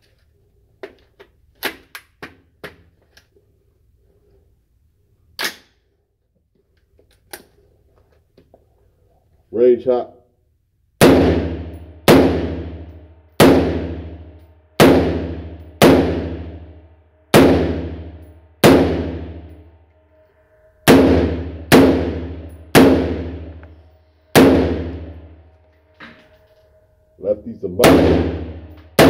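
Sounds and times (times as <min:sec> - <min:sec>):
rifle shots echoing indoors: 0:05.3 - 0:06.0, 0:11.0 - 0:29.0.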